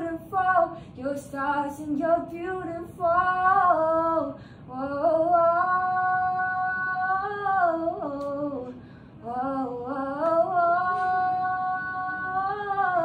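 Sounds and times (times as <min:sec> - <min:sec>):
woman singing a cappella: 0:00.0 - 0:13.0
woman breathing in: 0:04.4 - 0:04.7, 0:08.8 - 0:09.2.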